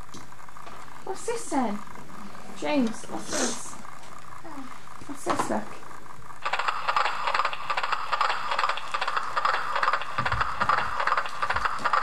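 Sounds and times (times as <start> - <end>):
toy mechanism clicking rattle: 6.4 - 12.0.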